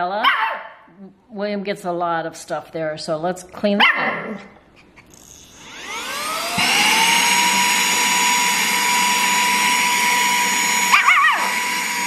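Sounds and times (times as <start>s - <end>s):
handheld vacuum motor whine: 5.0s - 12.0s
small dog whining: 10.9s - 11.5s.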